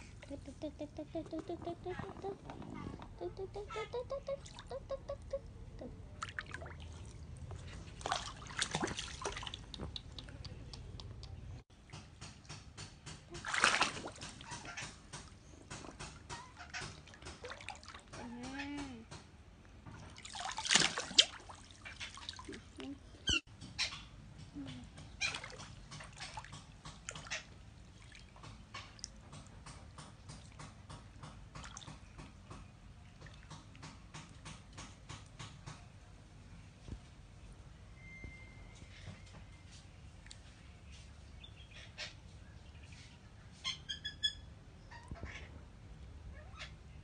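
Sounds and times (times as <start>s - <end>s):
water splashing and dripping: 6.2s - 19.0s, 19.9s - 22.9s, 25.2s - 34.7s.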